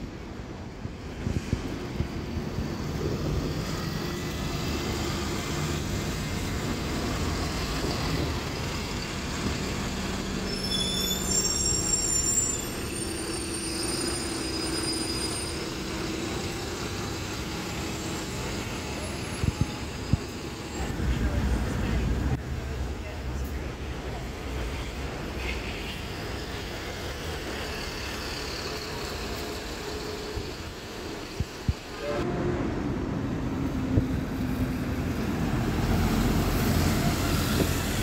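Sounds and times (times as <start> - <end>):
bus engines humming: 2.2 - 38.0
high-pitched metallic squeal: 8.6 - 20.9.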